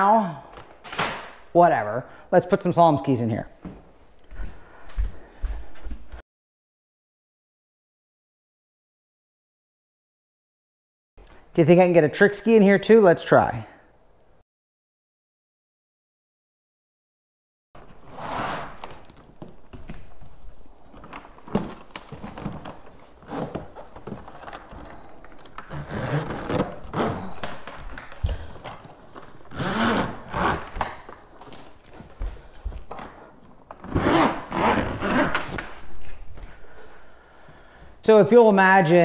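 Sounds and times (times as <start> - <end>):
zipper closing: 17.8 - 19.2, 21.3 - 27.9, 29.3 - 31.1, 33.8 - 36.2.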